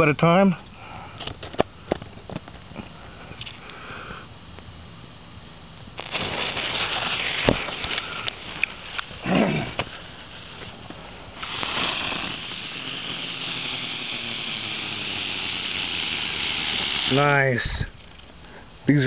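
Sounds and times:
ground fireworks hissing: 0.5 - 19.0
firework pops: 6.0 - 17.9.

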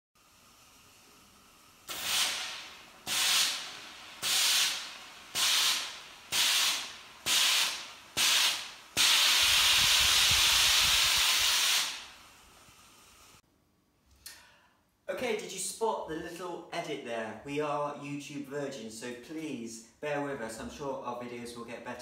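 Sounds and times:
steam iron hissing: 0.2 - 13.4.

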